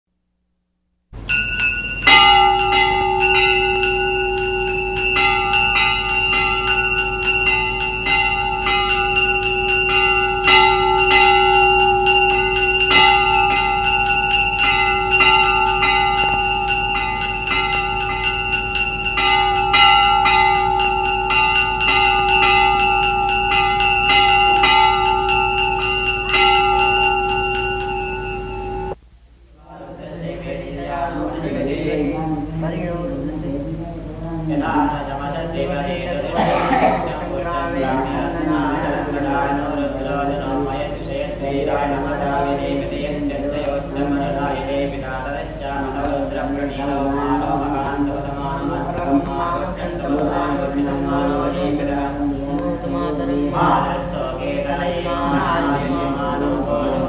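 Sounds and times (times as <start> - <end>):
temple bells rung rapidly: 1.2 - 29.0.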